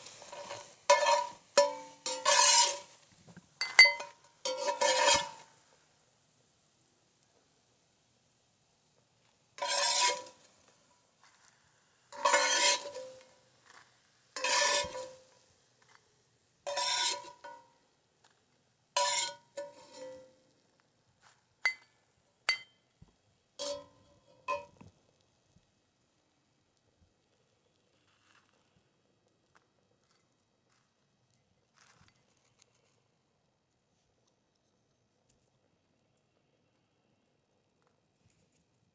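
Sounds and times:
metal spatula scraping skillet: 0.0 - 3.0, 3.6 - 5.6, 9.6 - 11.5, 12.1 - 15.5, 16.6 - 17.7, 19.0 - 20.4, 23.6 - 24.8.

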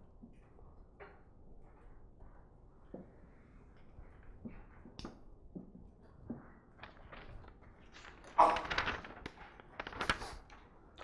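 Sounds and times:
paper rustling: 6.8 - 11.0.

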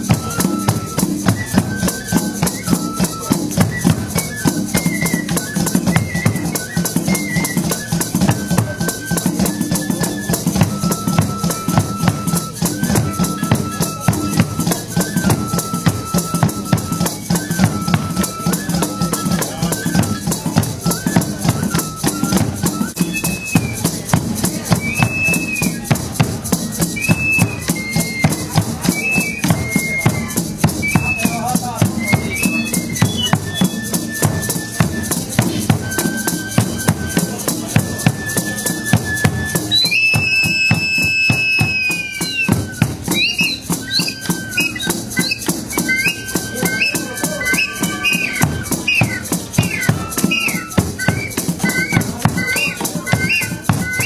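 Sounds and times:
drums beating: 0.0 - 54.0
small flute melody: 0.0 - 54.0
rattles shaking: 42.1 - 53.8.

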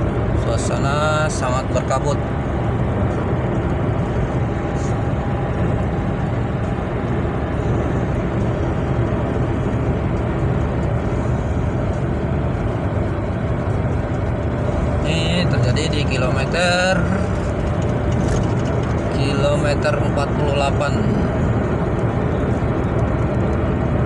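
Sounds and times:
car engine rumble inside cabin: 0.0 - 24.0.

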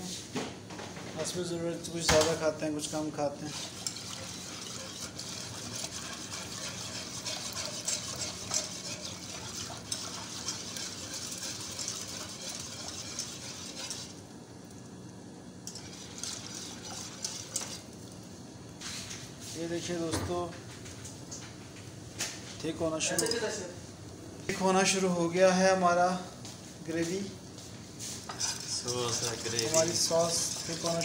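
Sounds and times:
whisk scratching against saucepan: 2.4 - 14.2, 15.7 - 18.0, 28.0 - 31.0.

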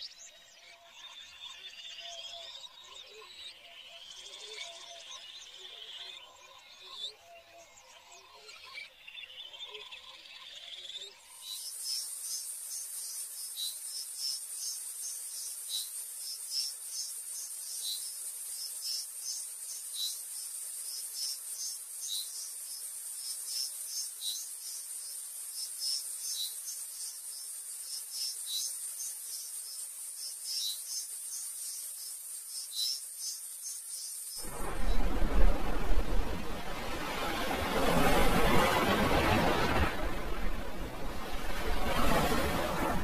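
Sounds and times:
lower insect chirp: 0.0 - 38.9
insects buzzing and chirping: 0.0 - 42.9
loud rushing noise: 34.4 - 43.0.

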